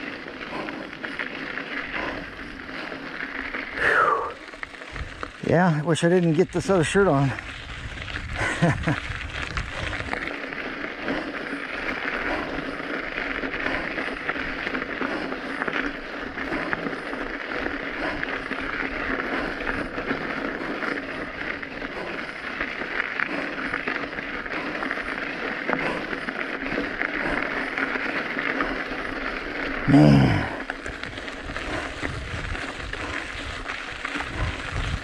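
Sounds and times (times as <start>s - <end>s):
tyres rolling on gravel: 0.0s - 35.0s
wind rushing over microphone: 6.6s - 10.3s, 30.9s - 35.0s.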